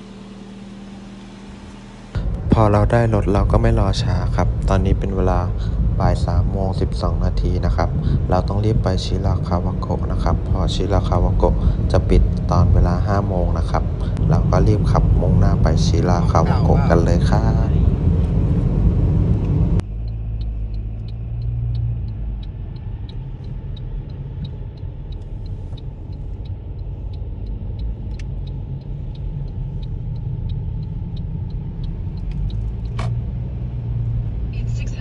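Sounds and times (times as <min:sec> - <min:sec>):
car road and engine rumble: 0:00.0 - 0:35.0
faint even ticking: 0:19.8 - 0:34.6
sharp click: 0:32.2 - 0:33.2.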